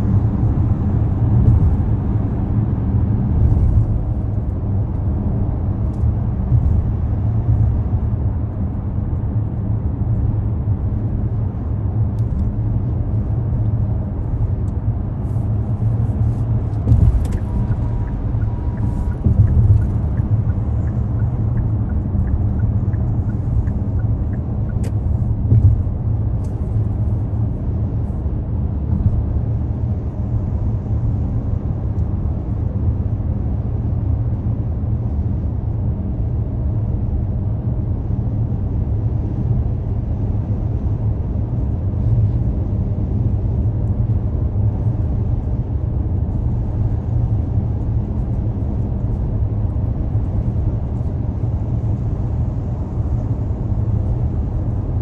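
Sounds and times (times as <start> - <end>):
car engine and tyre rumble: 0.0 - 55.0.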